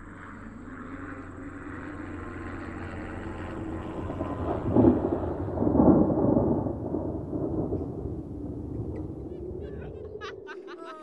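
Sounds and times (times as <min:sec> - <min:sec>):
thunder rumbling: 0:02.0 - 0:10.8.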